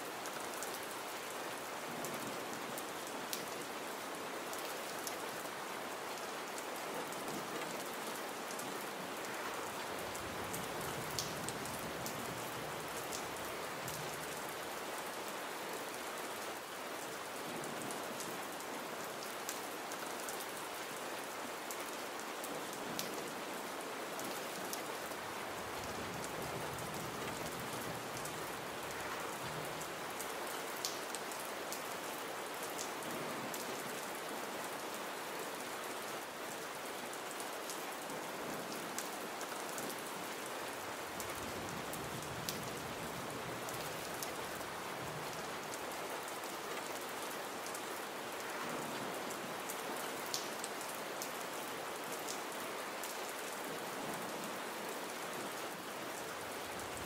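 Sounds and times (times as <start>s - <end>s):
gentle rain falling: 0.0s - 57.0s.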